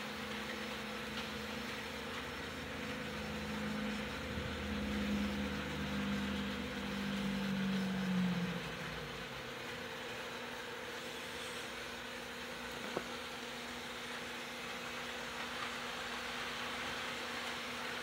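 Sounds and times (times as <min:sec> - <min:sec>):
low motor hum: 0:00.0 - 0:16.4
model trains running hiss: 0:00.0 - 0:18.0.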